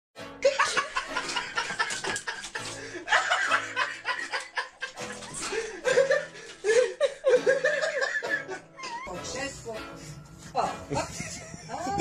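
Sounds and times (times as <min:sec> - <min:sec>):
person chuckling: 0:00.4 - 0:09.1.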